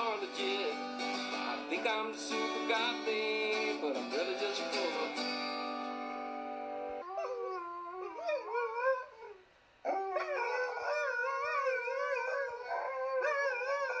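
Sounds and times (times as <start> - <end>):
dogs howling: 7.0 - 14.0.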